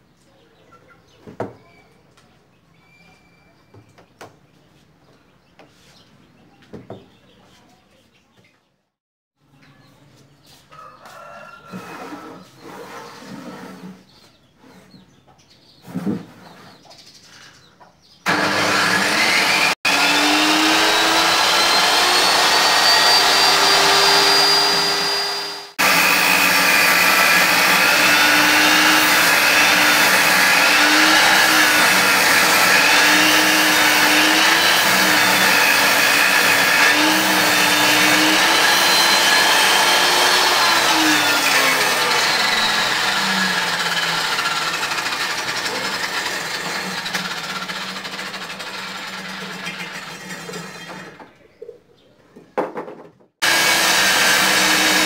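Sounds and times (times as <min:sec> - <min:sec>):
table saw ripping board: 0:18.3 - 0:51.3, 0:52.7 - 0:55.0.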